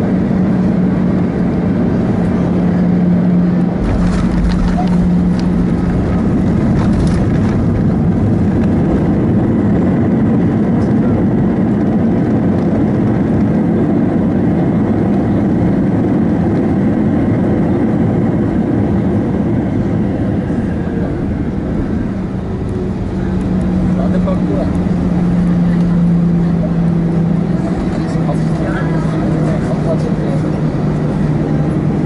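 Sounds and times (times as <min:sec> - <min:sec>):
airplane cabin rumble: 0:00.0 - 0:32.0
low hum: 0:00.0 - 0:32.0
steady low tone: 0:00.6 - 0:11.3, 0:19.1 - 0:32.0.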